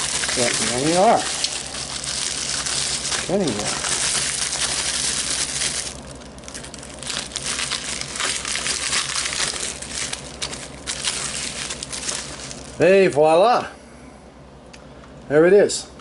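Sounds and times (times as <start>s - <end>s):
bubble wrap crinkling: 0.0s - 12.8s.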